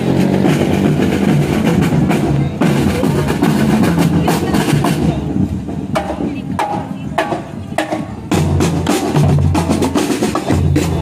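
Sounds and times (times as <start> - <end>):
snare tenor and bass drums beating: 0.0 - 11.0.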